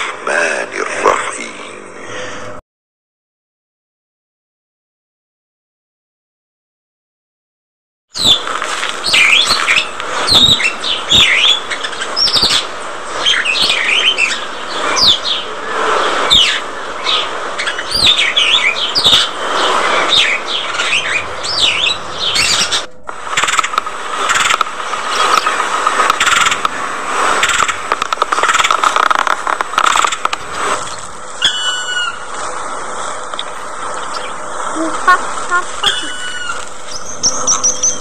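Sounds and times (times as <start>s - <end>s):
budgerigars chattering: 8.2s - 32.7s, 33.5s - 38.0s.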